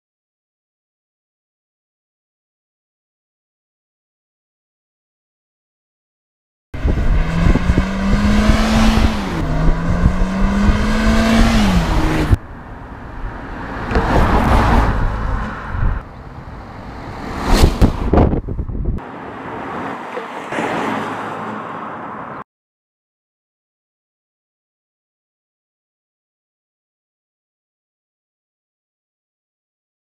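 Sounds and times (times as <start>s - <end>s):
car engine accelerating: 6.8s - 18.4s
car passing with tyre and wind noise: 6.8s - 22.4s.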